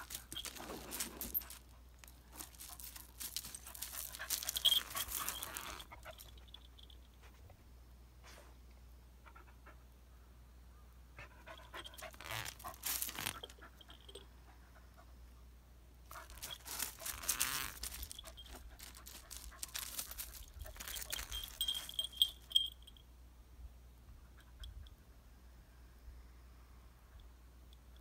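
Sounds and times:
dog paws crunching on gravel: 0.0 - 6.9, 11.8 - 13.6, 16.1 - 22.7
short high tinkle: 20.9 - 23.0.

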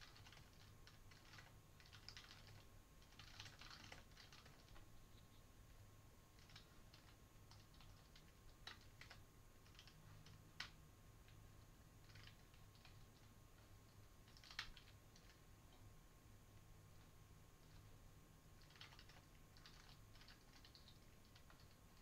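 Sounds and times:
typing on computer keyboard: 0.0 - 4.9, 6.4 - 11.4, 12.0 - 13.3, 14.2 - 15.8, 18.6 - 22.0.

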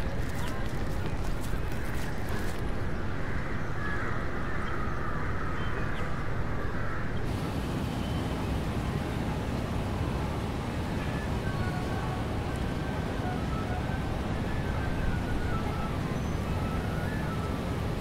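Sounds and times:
street low rumble: 0.0 - 3.2, 7.1 - 18.0.

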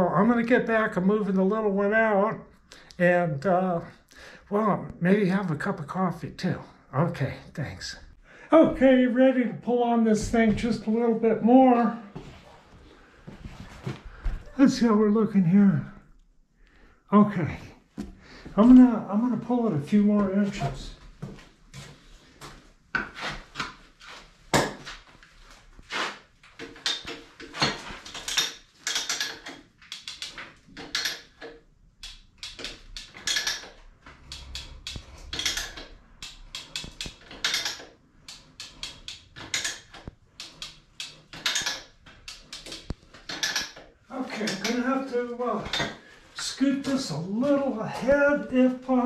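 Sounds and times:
chain puller ratcheting metal clicks: 26.6 - 43.8.

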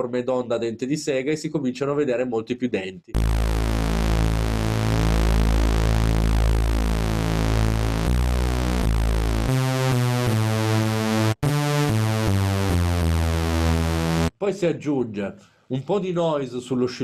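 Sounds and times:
synthesizer supersaw lead: 3.2 - 14.3.

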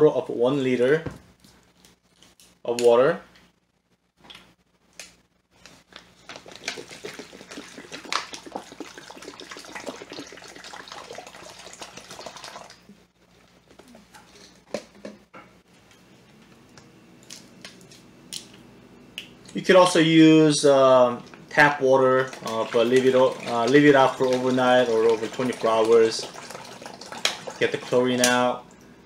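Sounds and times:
water glugging into plastic bag: 5.9 - 12.9, 22.1 - 28.3.

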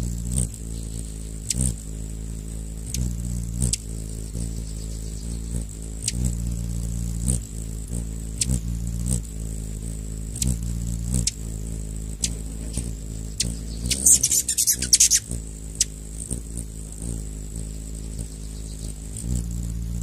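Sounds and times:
hummingbird wings buzzing: 0.0 - 20.0
high chattering bird calls: 12.2 - 16.0, 17.8 - 19.2
sharp chip calls: 14.0 - 15.2.

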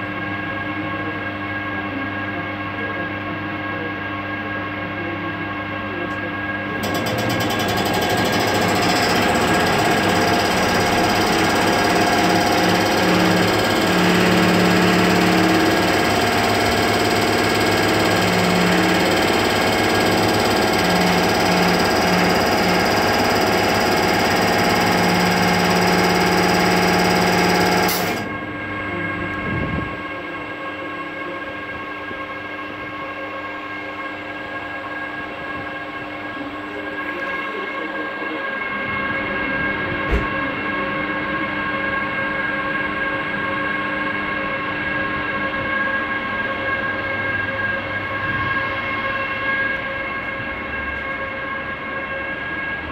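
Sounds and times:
air compressor pulsing: 6.6 - 32.2.

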